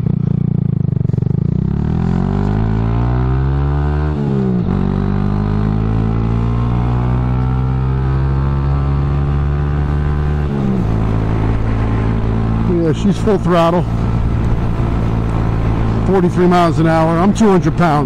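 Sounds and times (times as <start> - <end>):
motorcycle engine accelerating: 0.0 - 18.0.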